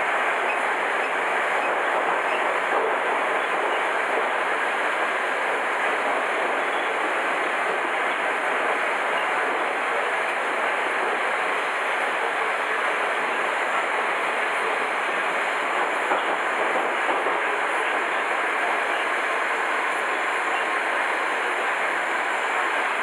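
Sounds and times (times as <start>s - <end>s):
train wheels running on rails: 0.0s - 23.0s.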